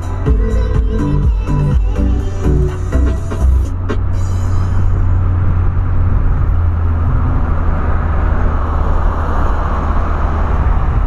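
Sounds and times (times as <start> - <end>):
low engine drone: 0.0 - 11.0
road and tyre noise: 0.0 - 11.0.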